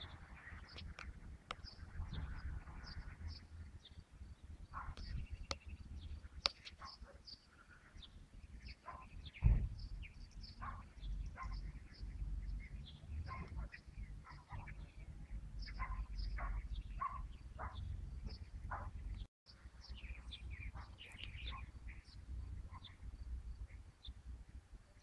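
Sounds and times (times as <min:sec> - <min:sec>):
small birds chirping: 0:00.0 - 0:25.0
dull thump: 0:09.4 - 0:09.8.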